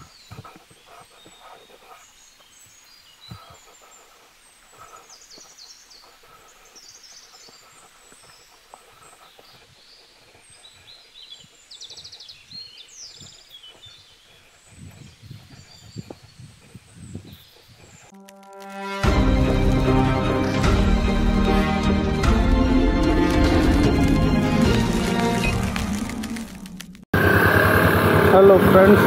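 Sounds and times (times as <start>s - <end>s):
birds chirping: 0.0s - 18.2s, 19.2s - 27.0s.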